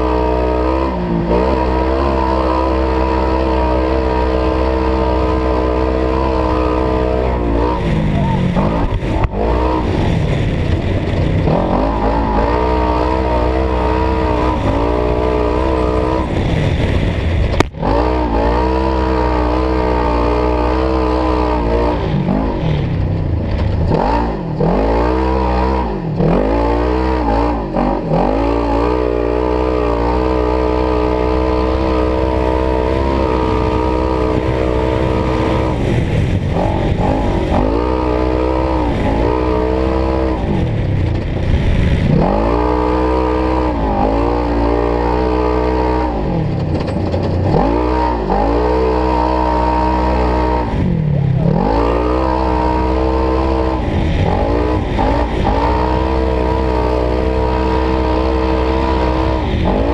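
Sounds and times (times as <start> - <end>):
engine revving at high revs: 0.0 - 23.1, 23.8 - 59.9.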